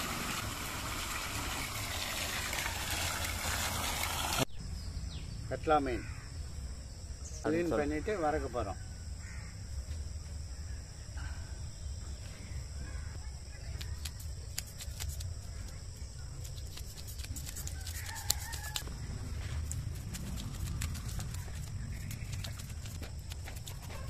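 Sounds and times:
knife scraping fish scales: 16.4 - 18.8.

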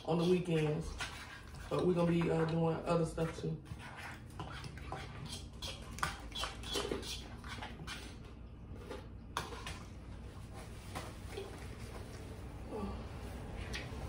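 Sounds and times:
chewing and lip-smacking: 4.0 - 9.3.

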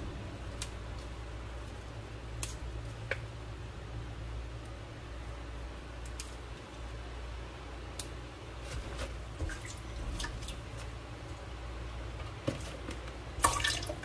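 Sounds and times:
water splashing into sink: 9.4 - 10.8, 13.4 - 14.0.

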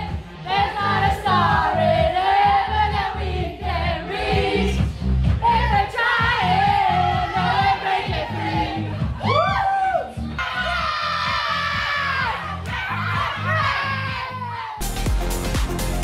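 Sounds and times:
women singing along: 0.0 - 9.6
pop music with sung vocals: 0.0 - 16.0.

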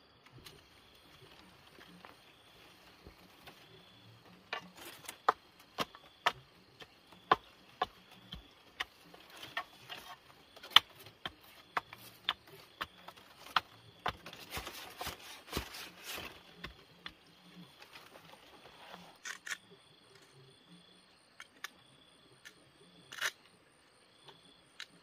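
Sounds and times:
scraping: 0.4 - 19.5.

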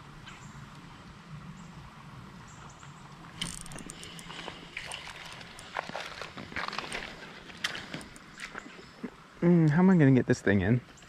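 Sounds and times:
faint steady hum: 0.0 - 11.0
fishing reel clicking and rattling: 3.4 - 5.8.

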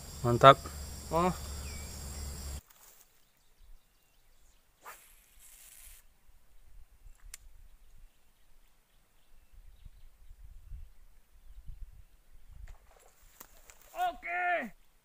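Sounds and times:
fishing rod swish: 4.8 - 6.0
line hissing off reel: 4.8 - 6.1.

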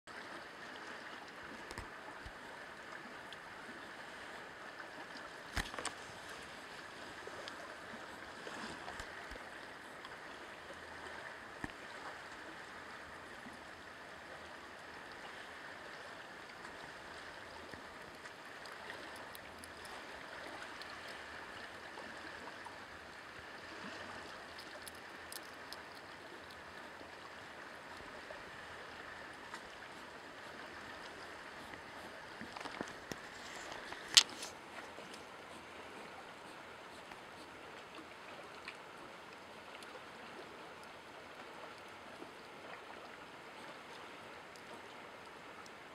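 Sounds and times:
faint clicks and rustles: 31.5 - 35.7.

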